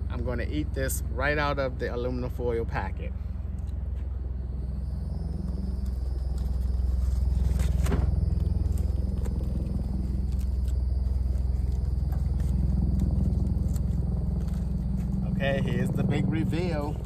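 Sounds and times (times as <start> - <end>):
steady low hum: 0.0 - 17.0
foil packet crinkling: 5.8 - 15.2.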